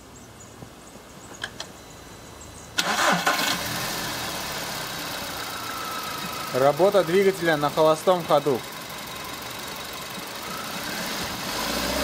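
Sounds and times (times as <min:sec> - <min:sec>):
car engine starting and idling: 0:02.8 - 0:12.0.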